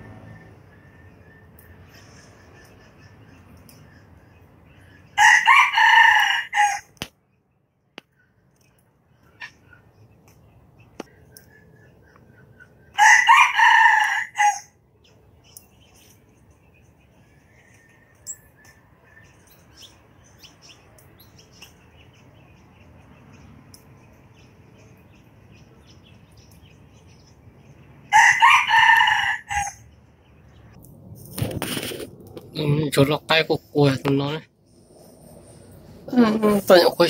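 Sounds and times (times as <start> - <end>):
rooster crowing: 5.2 - 7.0, 13.0 - 14.8, 28.1 - 29.9.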